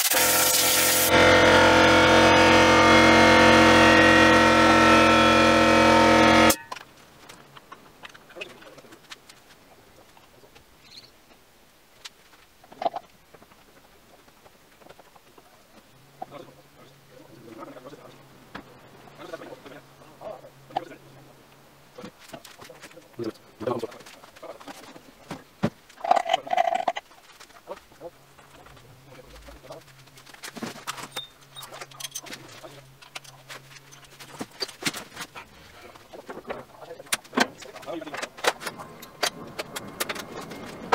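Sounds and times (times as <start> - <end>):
steady low hum: 0.2 - 10.5
tools and parts clicking: 30.9 - 32.4.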